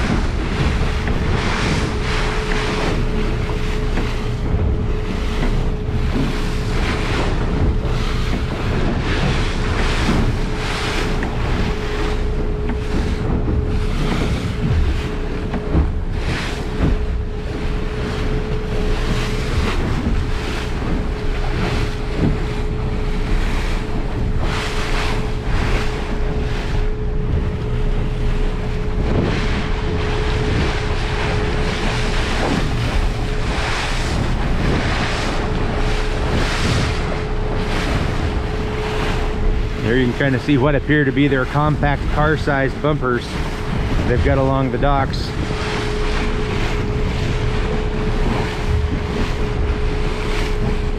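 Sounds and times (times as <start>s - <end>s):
boat engine drone: 0.0s - 50.9s
water splashing against hull: 0.0s - 50.9s
wind buffeting microphone: 0.0s - 50.9s.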